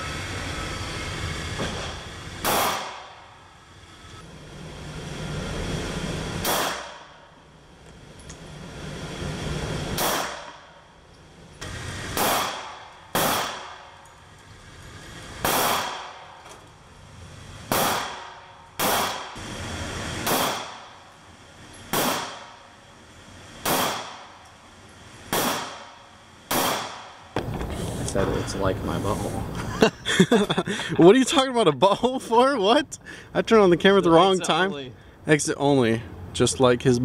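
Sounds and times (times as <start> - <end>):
handgun shots echoing indoors: 2.4 - 3.1, 6.4 - 7.0, 10.0 - 10.6, 12.1 - 14.0, 15.4 - 16.3, 17.7 - 19.4, 20.2 - 20.9, 21.9 - 22.5, 23.6 - 24.2, 25.3 - 25.9, 26.5 - 27.1.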